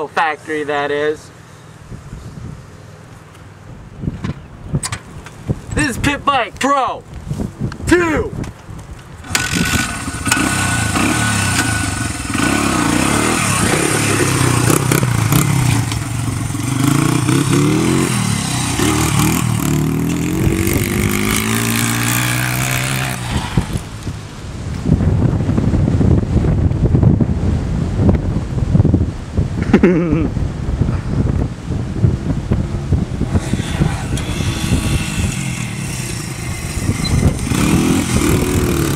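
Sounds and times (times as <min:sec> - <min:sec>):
wind noise on microphone: 0:01.8 - 0:38.9
motorbike engine revving: 0:09.2 - 0:24.0, 0:31.8 - 0:38.9.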